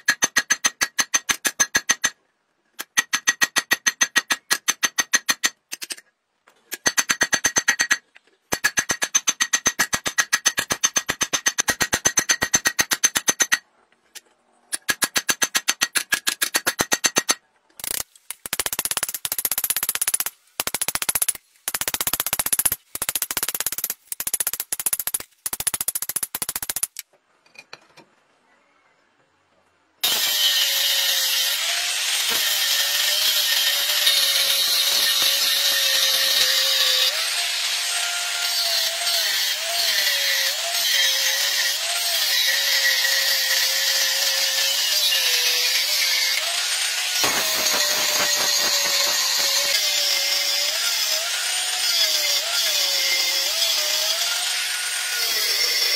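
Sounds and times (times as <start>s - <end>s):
angle grinder cutting steel: 30.0s - 55.9s.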